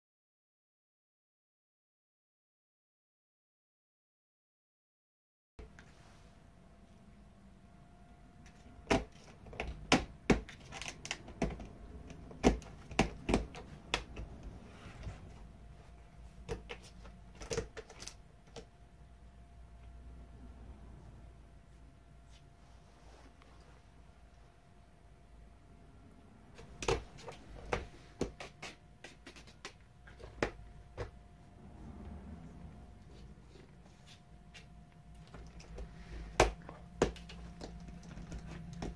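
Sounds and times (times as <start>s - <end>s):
cat claws scratching wooden door: 8.6s - 14.4s.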